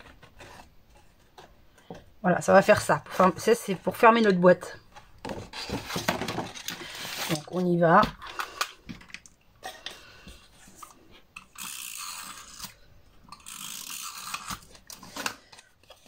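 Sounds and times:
paper rustling and crinkling: 0:05.2 - 0:07.8.

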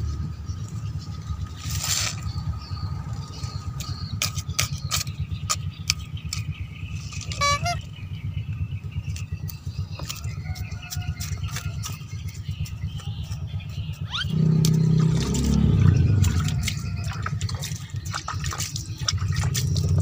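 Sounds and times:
low rumble: 0:00.0 - 0:20.0
blade digging into sandy soil: 0:01.6 - 0:02.4.

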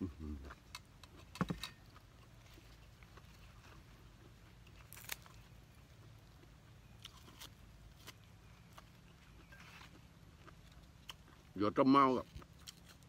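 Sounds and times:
man chewing food: 0:00.3 - 0:11.6, 0:12.3 - 0:13.0
leafy greens handled: 0:04.7 - 0:05.5.

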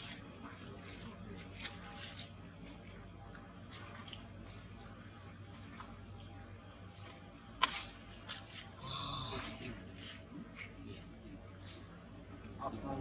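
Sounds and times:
high insect whine: 0:05.0 - 0:13.0.

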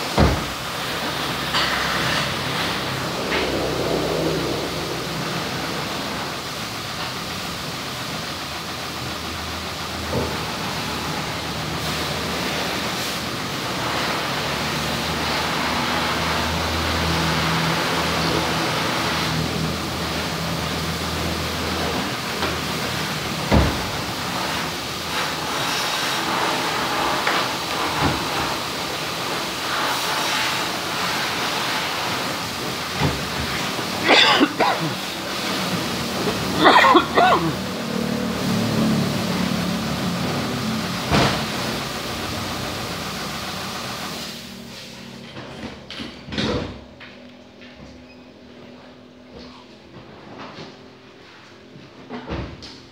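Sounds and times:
pressure washer jet hissing: 0:00.0 - 0:18.2
high-pressure water spray hissing: 0:00.0 - 0:45.3
low hum: 0:01.1 - 0:07.2.

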